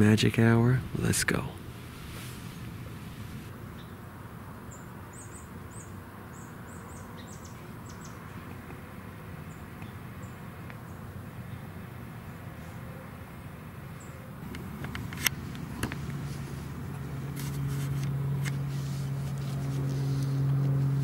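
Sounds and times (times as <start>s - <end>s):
woodland background rumble and hiss: 0.0s - 21.0s
small bird chirping: 4.7s - 8.5s.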